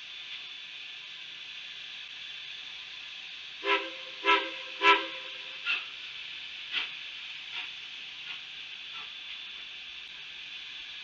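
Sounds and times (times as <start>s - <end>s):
steady steam hiss: 0.0s - 11.0s
steam locomotive chime whistle: 3.6s - 5.9s.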